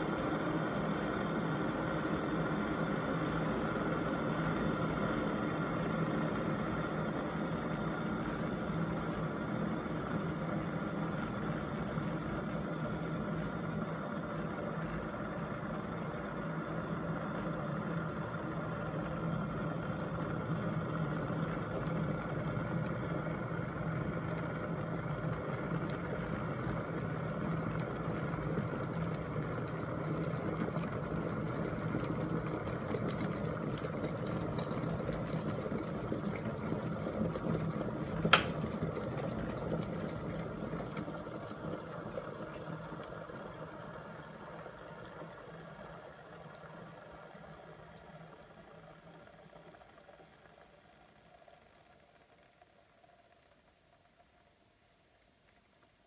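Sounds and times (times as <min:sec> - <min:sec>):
kettle boiling: 0:00.0 - 0:56.0
kettle switch click: 0:38.3 - 0:38.6.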